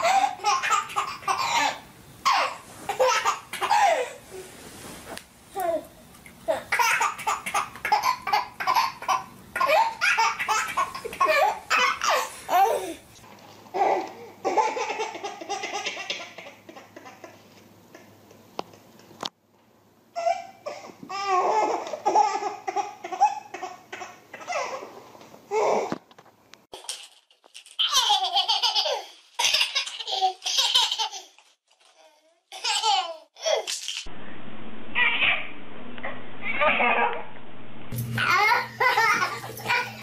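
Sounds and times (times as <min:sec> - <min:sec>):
babies laughing: 0:00.0 - 0:04.2, 0:06.5 - 0:13.0, 0:13.8 - 0:18.1, 0:27.8 - 0:31.4, 0:32.6 - 0:33.7, 0:38.2 - 0:40.0.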